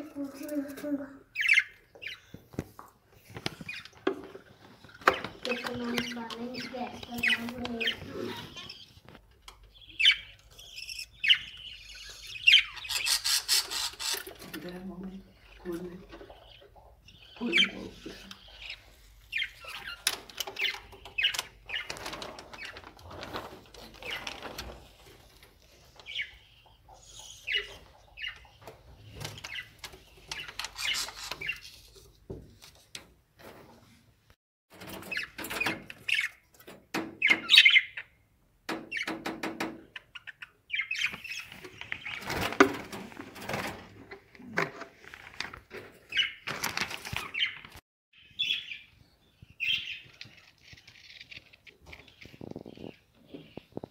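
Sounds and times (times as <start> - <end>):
budgerigars chirping: 1.4 - 2.3, 9.6 - 14.5, 15.3 - 21.9, 25.9 - 31.6, 37.2 - 38.2, 39.9 - 42.2, 48.2 - 50.1.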